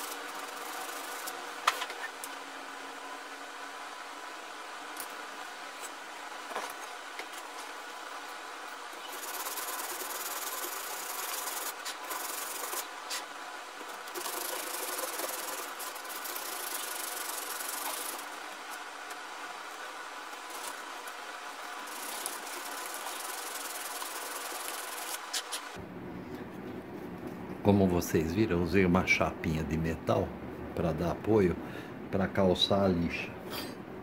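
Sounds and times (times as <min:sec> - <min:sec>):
sandpaper scratching on wood: 0:00.0 - 0:01.3, 0:09.1 - 0:13.3, 0:14.1 - 0:18.3.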